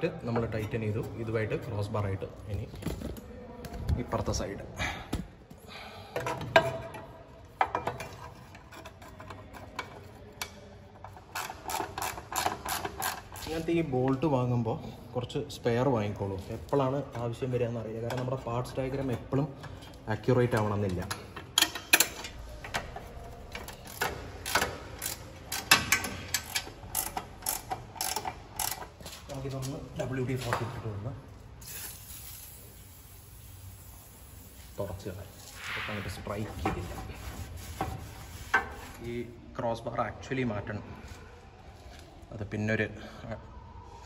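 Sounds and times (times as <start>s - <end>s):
ratchet wrench clicking: 11.2s - 13.5s, 23.6s - 28.9s.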